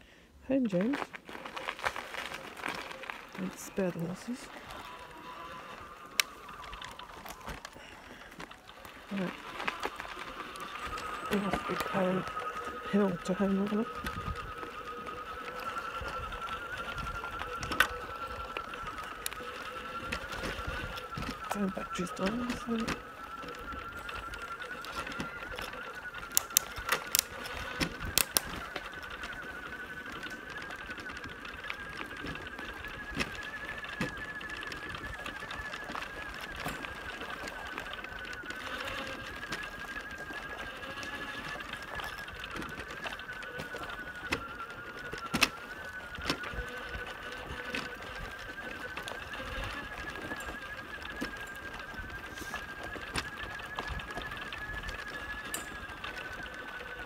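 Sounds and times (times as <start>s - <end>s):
electric motor whining: 0.7s - 57.0s.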